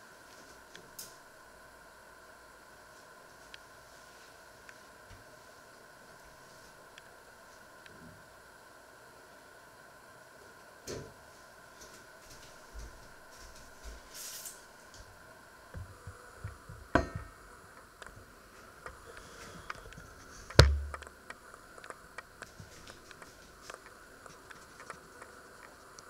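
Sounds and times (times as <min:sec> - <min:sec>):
camera handling knocks: 0:20.6 - 0:21.0
sharp knock with low rumble: 0:20.6 - 0:21.0.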